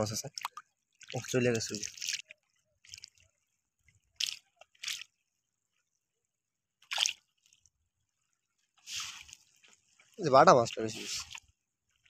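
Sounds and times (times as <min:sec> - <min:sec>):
splashes in muddy water: 0:00.1 - 0:03.2, 0:04.1 - 0:05.2, 0:06.8 - 0:07.6, 0:08.8 - 0:11.6.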